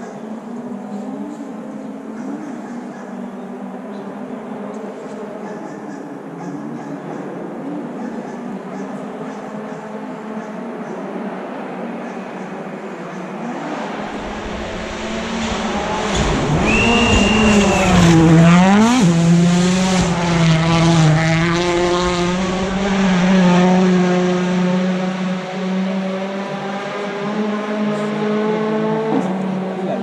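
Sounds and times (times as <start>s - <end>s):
rally car engine accelerating: 13.3s - 30.0s
brief high whistle: 16.5s - 18.2s.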